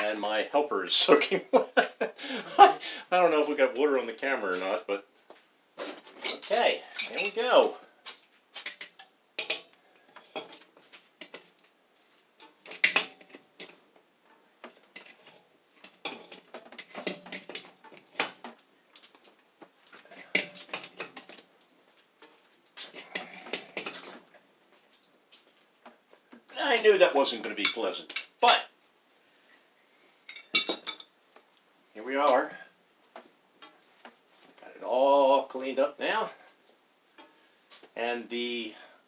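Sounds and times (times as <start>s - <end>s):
metal wrench clinking on pipe fitting: 30.3s - 31.1s.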